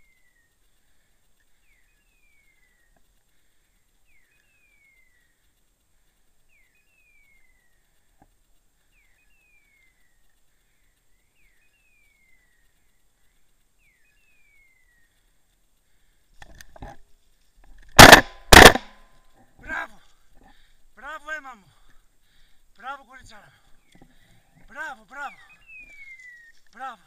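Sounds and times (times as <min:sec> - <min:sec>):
faint cracks and rustles: 0:00.0 - 0:21.0, 0:21.8 - 0:27.0
beeper collar chirp and whistle: 0:25.2 - 0:26.6.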